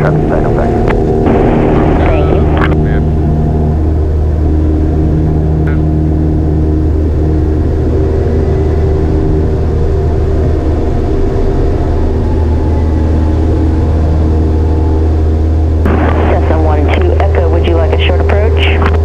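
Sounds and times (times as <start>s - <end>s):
propeller plane engine drone: 0.0s - 19.0s.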